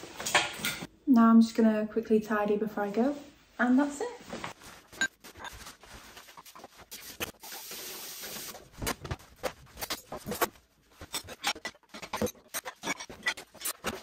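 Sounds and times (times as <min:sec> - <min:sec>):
rustling: 0:04.2 - 0:14.0.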